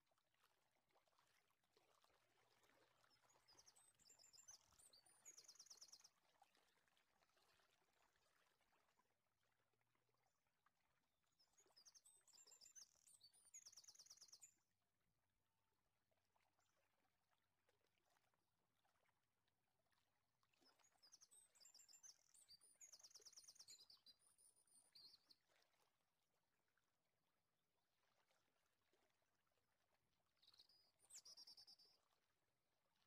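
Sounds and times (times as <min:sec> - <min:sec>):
faint bird chirps and trills: 0:03.0 - 0:06.2, 0:11.3 - 0:14.6, 0:20.6 - 0:25.6, 0:30.4 - 0:32.3.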